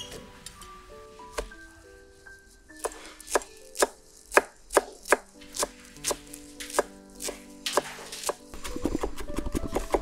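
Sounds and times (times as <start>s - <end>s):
knife chopping on wooden board: 2.8s - 10.0s.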